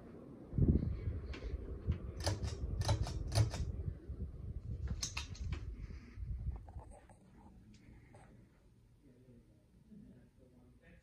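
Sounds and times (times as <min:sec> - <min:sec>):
low rumble of moving air: 0:00.0 - 0:08.3
ceiling fan pull-chain clicks: 0:01.3 - 0:03.8, 0:04.8 - 0:05.7.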